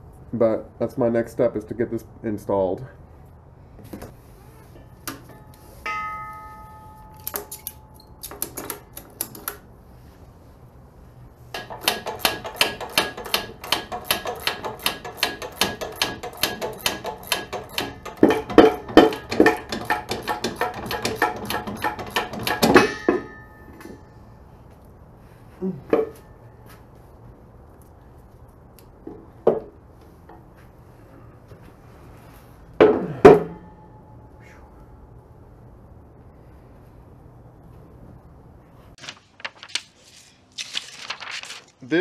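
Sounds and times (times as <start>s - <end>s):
short metallic ring: 5.3s - 8.2s, 22.7s - 24.2s.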